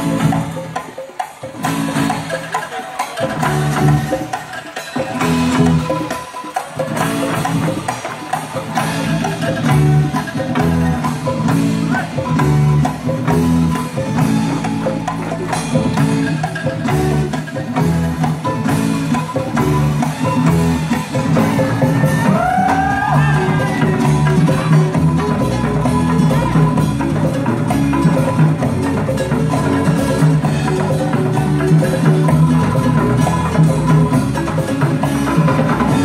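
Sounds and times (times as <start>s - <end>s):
drum strokes: 0.0s - 36.0s.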